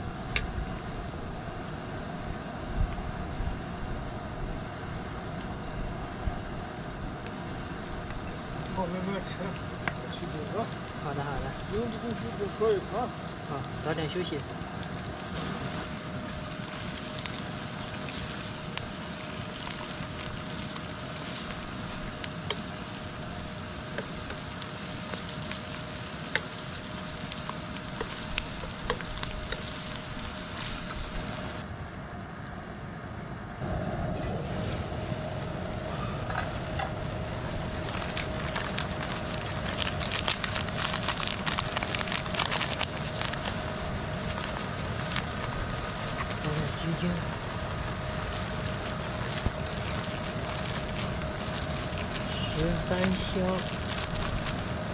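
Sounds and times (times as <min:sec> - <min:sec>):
sausage sizzling in a wok: 0:00.0 - 0:31.6, 0:37.4 - 0:54.9
steady hum: 0:00.0 - 0:54.9
crackling pops: 0:08.0 - 0:31.6, 0:37.6 - 0:54.9.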